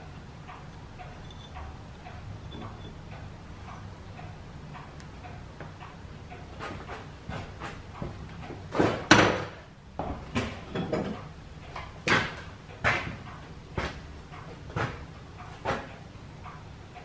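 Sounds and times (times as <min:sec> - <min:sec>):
knocks and clatters: 0:06.6 - 0:16.0.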